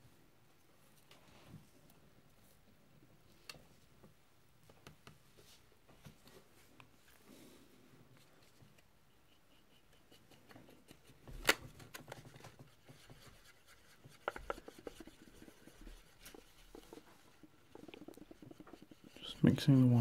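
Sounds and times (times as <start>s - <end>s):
paintbrush scraping tray: 12.2s - 20.0s.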